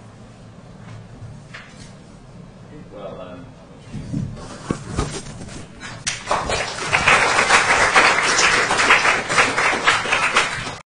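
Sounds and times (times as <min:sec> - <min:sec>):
audience applauding: 0:06.1 - 0:10.8.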